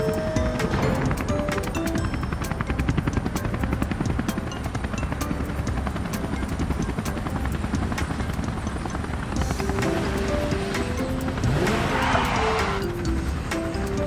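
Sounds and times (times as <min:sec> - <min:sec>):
background music: 0:00.0 - 0:14.0
helicopter rotor chop: 0:00.0 - 0:14.0.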